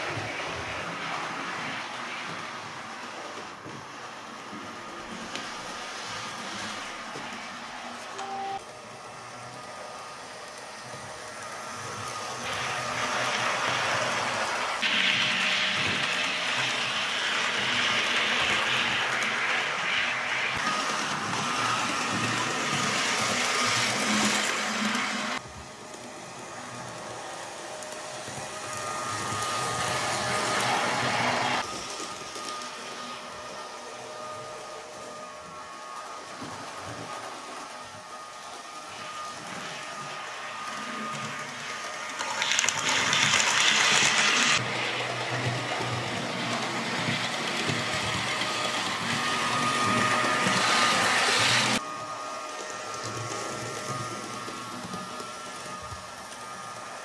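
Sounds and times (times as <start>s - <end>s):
model train wheels and motor hissing: 0.0s - 57.0s
model train motor whirring: 39.5s - 51.9s.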